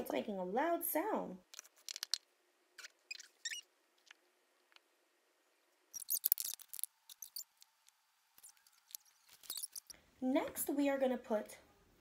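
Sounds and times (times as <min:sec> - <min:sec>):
glue bottle squeaking and sputtering: 0:02.8 - 0:04.2, 0:05.9 - 0:10.0.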